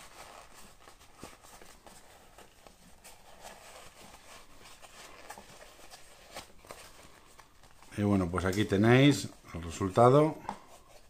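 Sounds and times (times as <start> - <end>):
pouch rustling in hands: 0.0 - 9.2.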